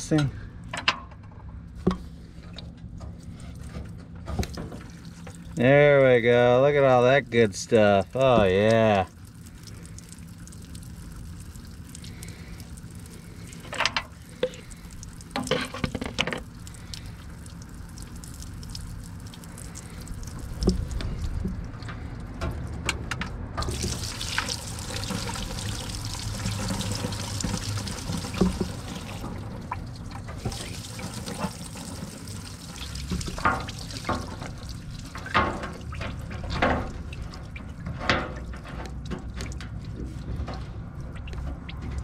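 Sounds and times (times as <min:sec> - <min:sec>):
fuel pouring and splashing: 0:01.8 - 0:42.0.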